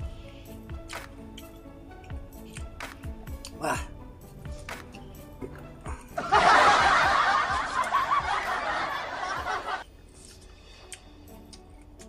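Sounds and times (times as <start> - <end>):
laughter sound effect: 6.2 - 9.8.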